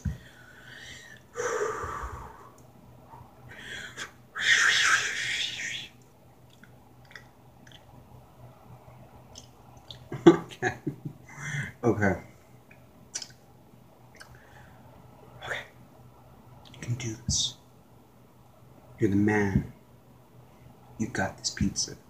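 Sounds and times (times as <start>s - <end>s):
man breathing heavily: 0.0s - 2.6s, 3.5s - 4.6s.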